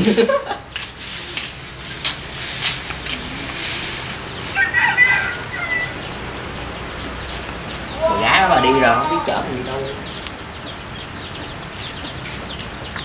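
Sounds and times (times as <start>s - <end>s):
broom sweeping concrete: 0.0s - 4.9s, 11.8s - 12.6s
chicken calling: 0.0s - 13.0s.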